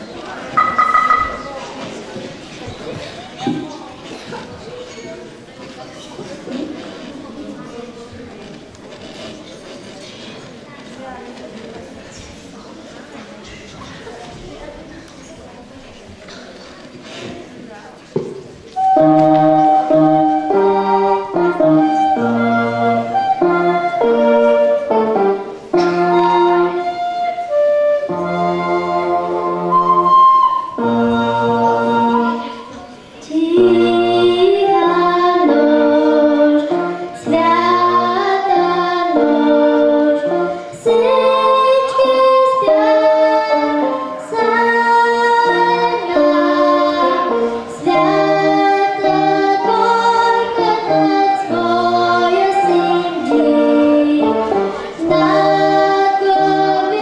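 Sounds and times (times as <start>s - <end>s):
electronic keyboard: 0.6s - 1.6s
recorder playing: 0.6s - 1.6s, 18.8s - 32.8s, 51.0s - 54.2s
girl singing into microphone: 25.7s - 57.0s.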